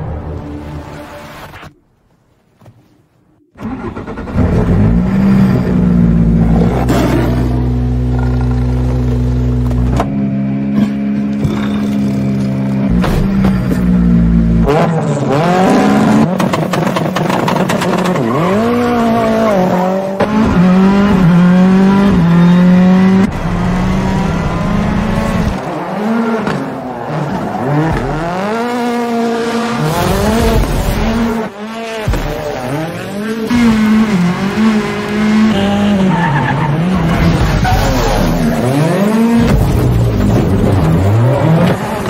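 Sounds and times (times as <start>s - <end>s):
rally car engine revving: 3.6s - 42.0s
tyre squeal: 35.9s - 39.0s.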